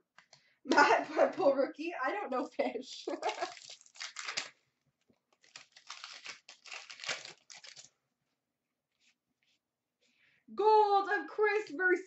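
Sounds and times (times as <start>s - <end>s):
wrapper tearing and crinkling: 3.2s - 4.6s, 5.3s - 7.9s.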